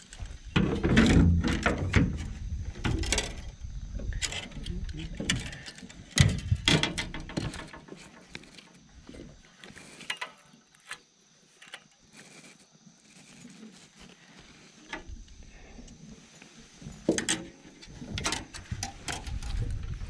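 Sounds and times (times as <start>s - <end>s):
fishing tackle clicking in metal boat: 2.9s - 8.8s.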